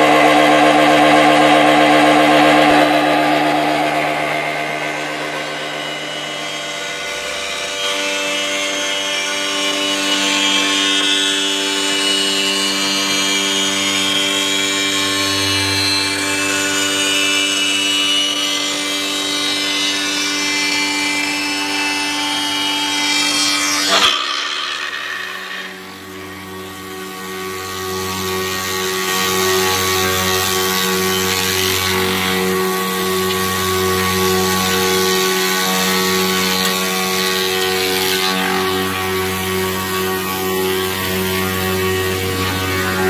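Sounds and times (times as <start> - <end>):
wood rounding machine whine: 0.0 - 43.0.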